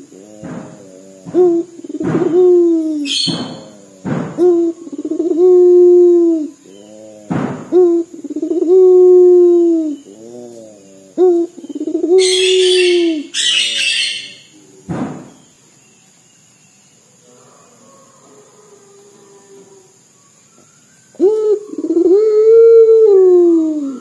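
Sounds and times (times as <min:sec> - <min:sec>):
dove cooing: 0:00.0 - 0:14.6, 0:21.1 - 0:24.0
harsh hissing noise: 0:00.0 - 0:16.2.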